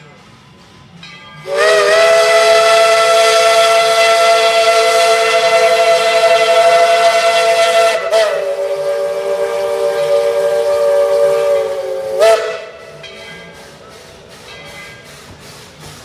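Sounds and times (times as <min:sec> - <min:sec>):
steam whistle blast: 0:01.4 - 0:13.0.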